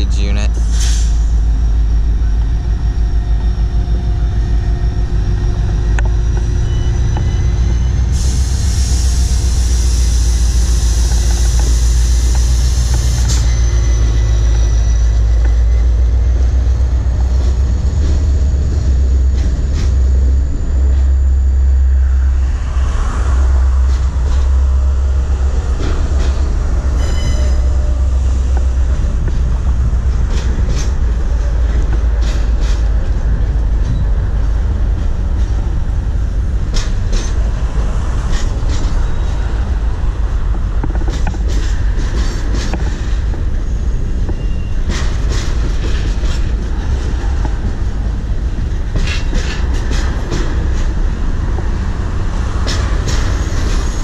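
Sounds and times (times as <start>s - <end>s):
diesel locomotive engine: 0.0s - 54.0s
freight cars rumbling: 0.0s - 54.0s
high wheel squeal: 4.8s - 16.9s, 20.0s - 28.9s, 43.0s - 45.3s
hiss: 8.1s - 13.4s
wheels clicking over rail joints: 25.8s - 37.6s, 40.4s - 54.0s.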